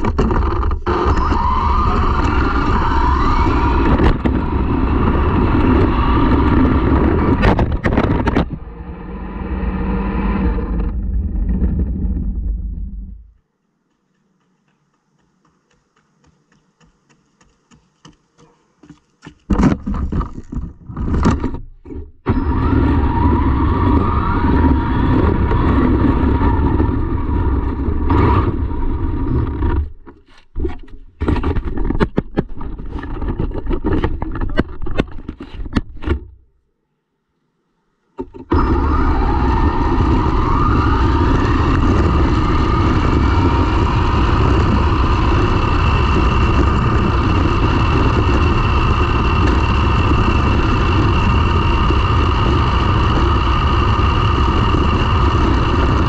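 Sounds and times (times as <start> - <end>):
rc car motor whining: 0.0 - 7.5, 22.3 - 30.0, 38.2 - 56.0
tyres rumbling on rough asphalt: 0.0 - 36.4, 38.2 - 56.0.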